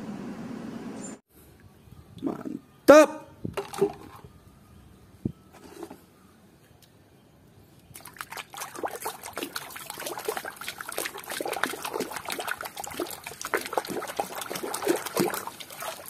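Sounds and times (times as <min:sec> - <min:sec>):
water splashing in a basin: 0:07.9 - 0:16.0.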